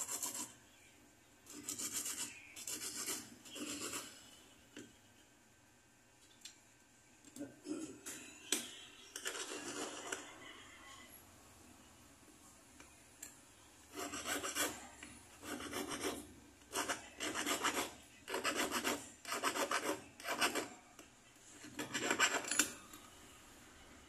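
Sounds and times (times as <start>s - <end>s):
metal bracelet rasping on file: 1.5s - 4.1s, 13.9s - 14.8s, 15.4s - 20.7s, 21.6s - 22.7s.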